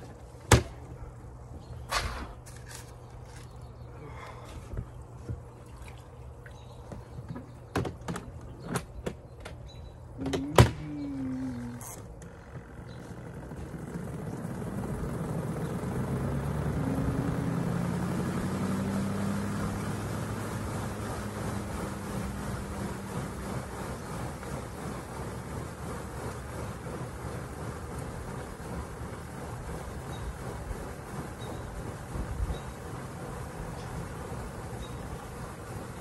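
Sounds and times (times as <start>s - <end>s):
washing machine motor hum: 0.0s - 36.0s
rushing water noise: 14.0s - 36.0s.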